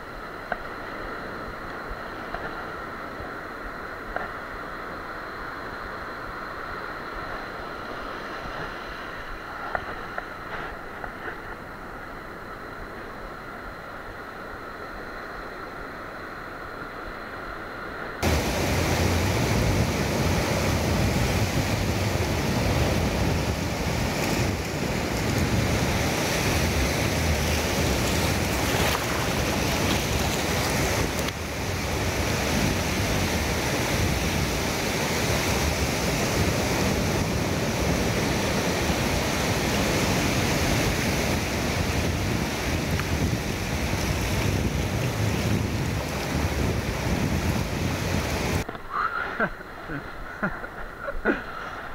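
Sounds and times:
wind buffeting the microphone: 18.2s - 48.6s
surf breaking on a beach: 18.2s - 51.9s.

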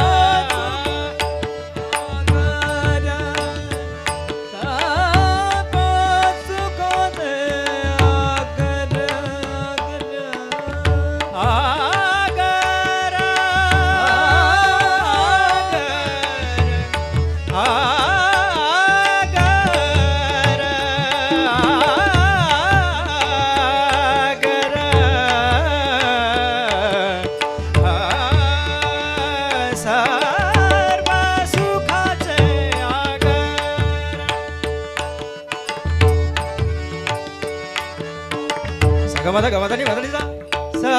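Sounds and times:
hand drums playing fast: 0.0s - 40.9s
harmonium melody: 0.0s - 40.9s
person singing wordless phrases: 4.5s - 34.3s.

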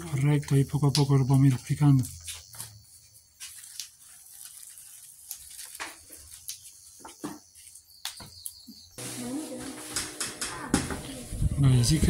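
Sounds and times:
green beans snapping: 3.4s - 6.7s.

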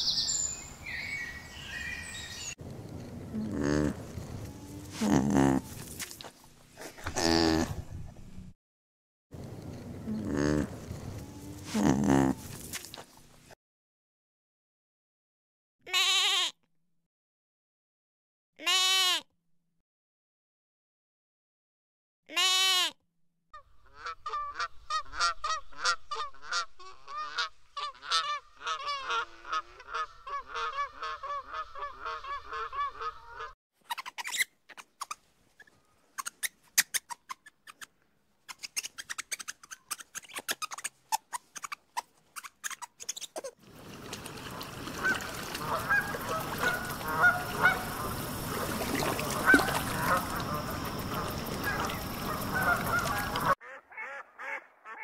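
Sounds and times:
bird calls: 0.0s - 2.6s, 44.5s - 53.6s
goat bleating: 4.9s - 5.6s, 7.0s - 7.8s, 11.7s - 12.5s, 15.9s - 16.5s, 18.6s - 19.2s, 22.3s - 23.0s
lemur clicks and chirps: 33.9s - 37.9s, 38.5s - 43.5s
rapid repeated animal calls: 44.5s - 55.0s.

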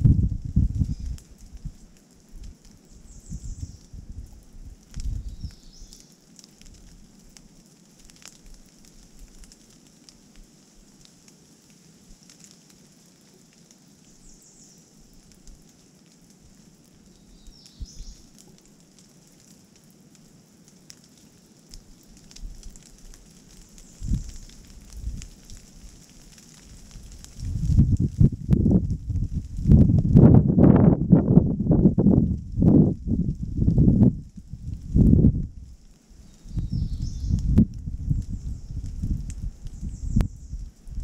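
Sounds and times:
wind buffeting microphone: 0.0s - 1.8s, 3.1s - 5.8s, 24.0s - 25.4s, 26.9s - 35.8s, 36.4s - 41.0s
rain dripping from trees: 0.0s - 41.0s
faint high bird chirps: 2.9s - 3.9s, 17.1s - 18.3s, 36.2s - 37.5s, 39.7s - 40.6s.

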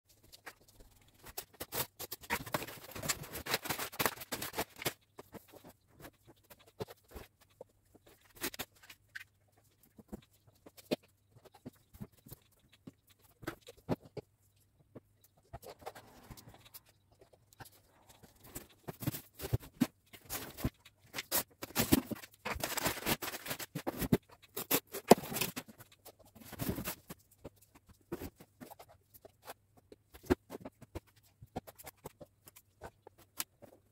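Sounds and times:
cardboard boxes being unpacked: 1.2s - 7.3s, 17.7s - 25.7s.

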